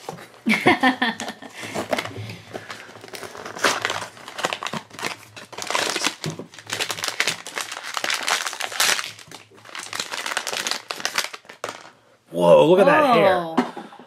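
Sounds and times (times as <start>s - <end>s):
foil and plastic wrapping crinkling: 1.2s - 11.9s.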